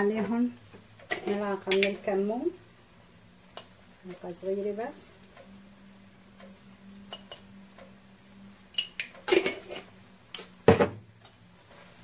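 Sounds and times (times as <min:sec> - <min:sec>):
kitchenware clinking and knocking: 0:09.3 - 0:11.0.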